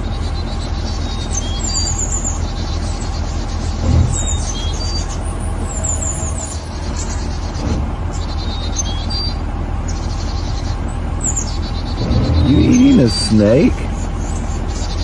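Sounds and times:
birds chirping trills: 0:00.0 - 0:15.0.

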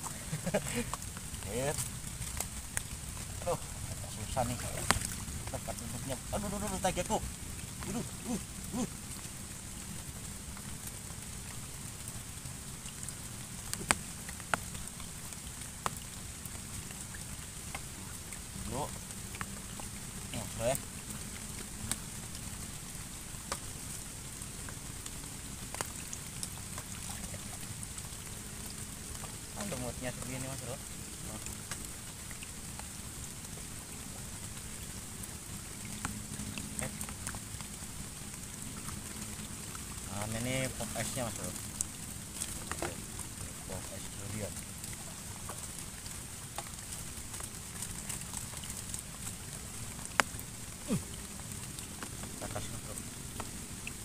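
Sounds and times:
heavy rain on pond: 0:00.0 - 0:54.0.

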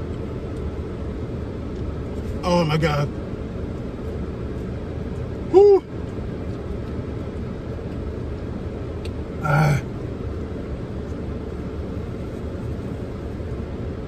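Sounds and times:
low rumble in car cabin: 0:00.0 - 0:14.0
man groaning: 0:05.5 - 0:05.8, 0:09.4 - 0:09.9.

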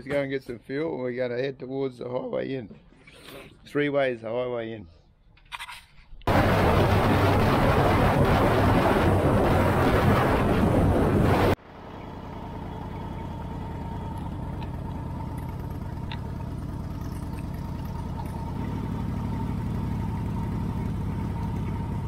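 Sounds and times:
loud wind rush: 0:06.3 - 0:11.6
motorcycle engine running: 0:11.6 - 0:22.0.

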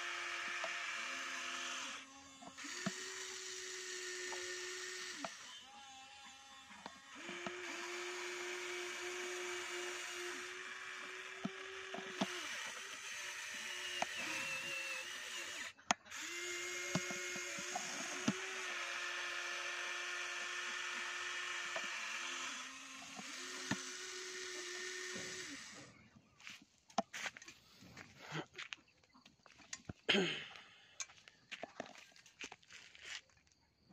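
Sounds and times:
electric motors whining: 0:00.0 - 0:26.1
clicks and knocks of dirt and stones: 0:31.0 - 0:33.6.

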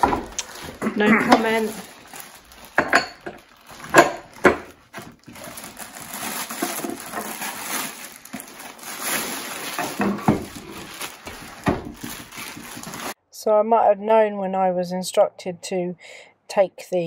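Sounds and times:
plastic packaging crinkling: 0:00.0 - 0:13.2.

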